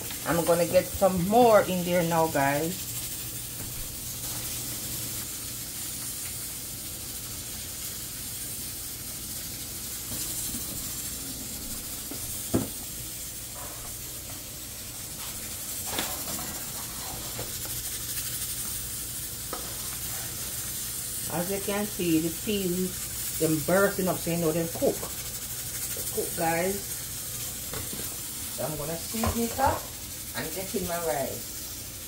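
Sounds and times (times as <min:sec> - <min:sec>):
pressure cooker hissing: 0:00.0 - 0:32.0.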